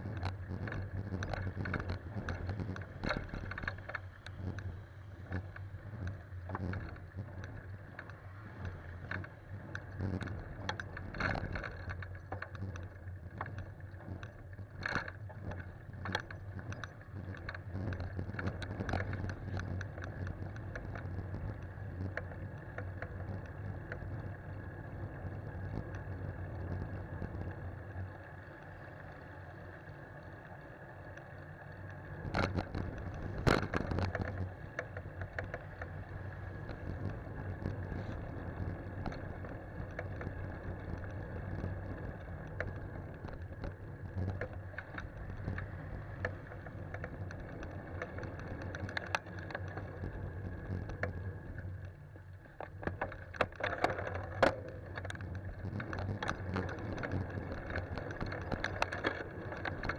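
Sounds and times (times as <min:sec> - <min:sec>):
bicycle rattles and knocks: 0:00.0 - 0:27.4, 0:32.0 - 0:59.9
wind: 0:00.0 - 0:59.9.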